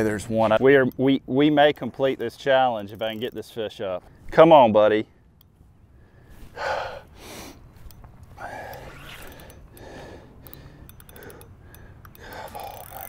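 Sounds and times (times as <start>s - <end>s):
man breathing hard: 6.0s - 7.7s, 8.3s - 13.0s.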